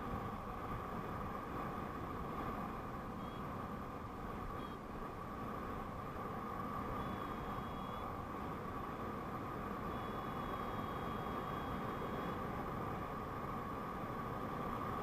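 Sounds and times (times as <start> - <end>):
faint thin high tone: 7.0 - 8.1, 9.9 - 12.4.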